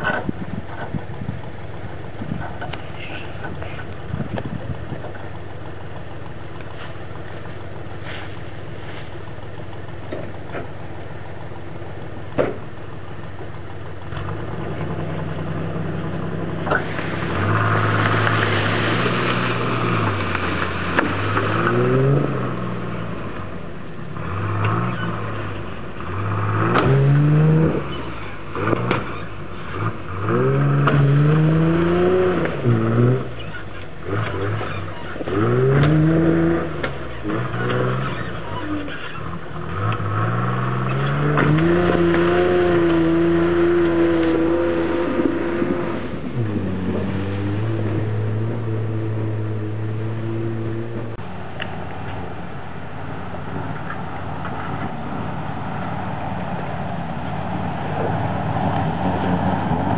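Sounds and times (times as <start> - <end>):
engine idling and revving: 0.0 - 59.9
tyres churning through leaves and dirt: 0.0 - 59.9
sharp engine knocks: 12.3 - 15.3.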